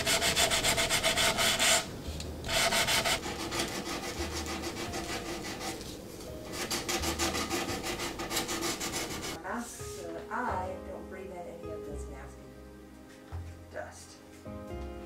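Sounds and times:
hand sanding wood: 0:00.0 - 0:01.9, 0:02.5 - 0:09.4.

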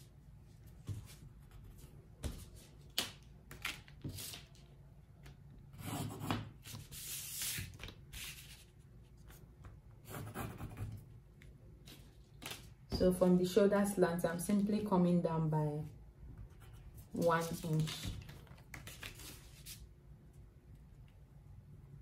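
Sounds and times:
pencil scratching on paper: 0:05.8 - 0:07.6, 0:10.0 - 0:11.0.

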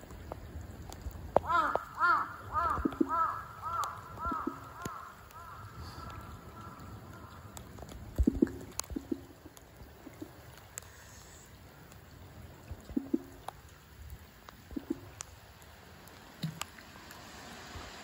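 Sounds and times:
light ticks: 0:00.0 - 0:01.9, 0:02.7 - 0:05.4, 0:06.0 - 0:12.1, 0:12.8 - 0:13.7
water gurgling and dripping: 0:00.0 - 0:18.0
faint hiss: 0:10.6 - 0:12.2, 0:15.1 - 0:18.0.

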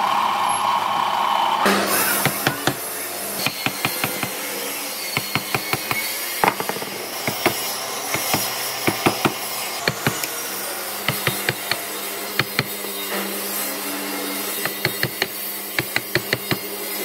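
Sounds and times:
sharp knocks and taps on wood: 0:05.2 - 0:10.3, 0:11.1 - 0:11.8, 0:12.4 - 0:12.7, 0:14.6 - 0:16.6.

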